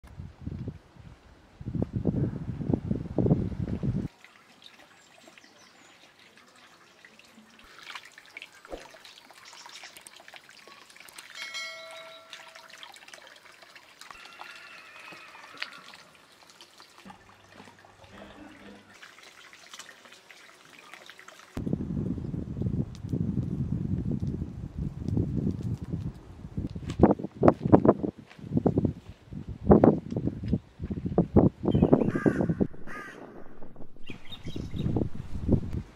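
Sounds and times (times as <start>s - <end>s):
wind on microphone: 0.1s - 4.1s, 21.6s - 35.9s
small water splashes: 4.0s - 21.6s
tap water trickling: 6.1s - 21.4s.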